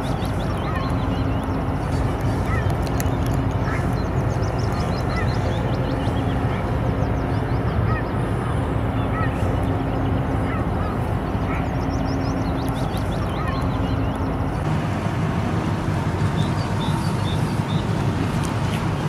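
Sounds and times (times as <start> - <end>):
low hum: 0.0 - 18.5.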